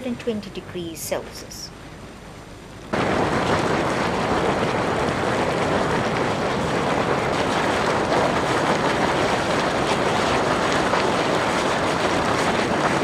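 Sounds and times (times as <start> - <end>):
falling water spattering: 3.0 - 13.0.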